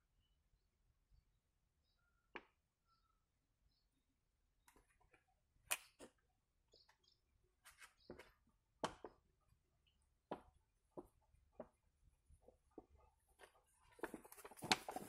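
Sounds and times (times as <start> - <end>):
plastic pouch crackling: 13.9 - 15.0.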